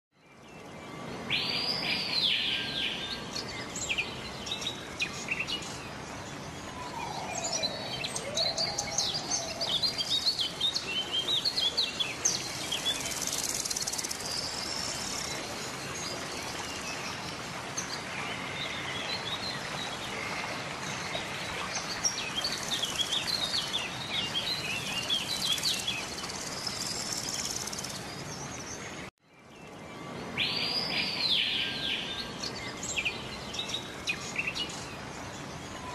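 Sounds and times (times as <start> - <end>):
rushing water: 0.5 - 29.1, 29.9 - 35.9
birds singing and chirping: 1.4 - 17.2, 21.8 - 35.9.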